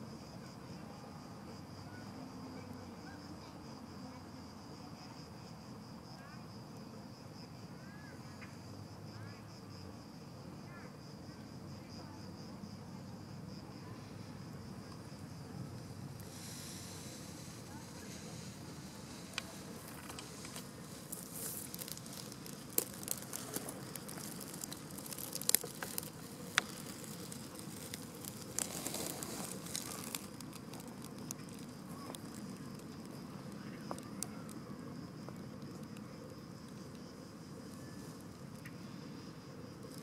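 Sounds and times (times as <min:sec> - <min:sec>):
rustling: 0:15.8 - 0:33.2
sharp clicks and crackles: 0:17.4 - 0:34.6.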